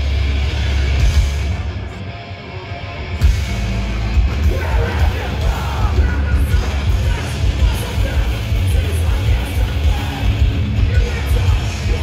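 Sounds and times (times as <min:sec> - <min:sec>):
punk band playing live: 0:00.0 - 0:12.0
singer shouting vocals: 0:04.4 - 0:12.0.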